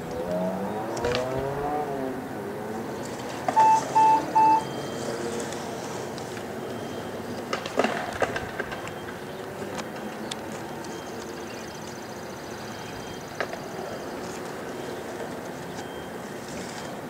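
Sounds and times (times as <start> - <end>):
outdoor background hum: 0.0 - 17.0
short electronic beeps: 3.6 - 5.1.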